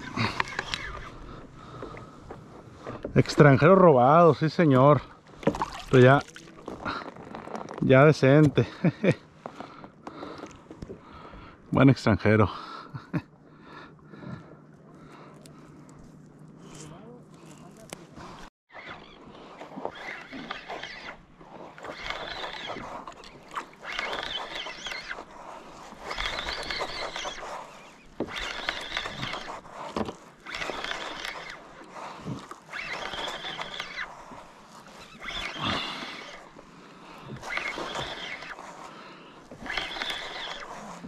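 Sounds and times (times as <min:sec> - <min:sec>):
fishing rod swishing: 0:18.7 - 0:36.6, 0:37.2 - 0:41.0.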